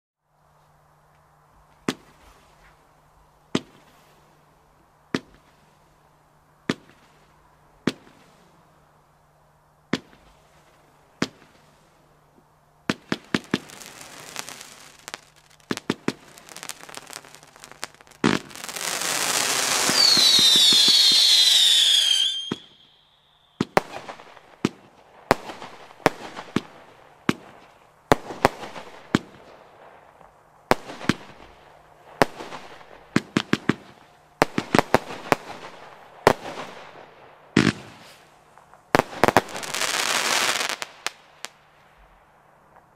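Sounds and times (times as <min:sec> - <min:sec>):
hissing crackle: 0:12.9 - 0:24.7
firework battery shots: 0:12.9 - 0:27.5
high falling whistles: 0:18.7 - 0:23.6.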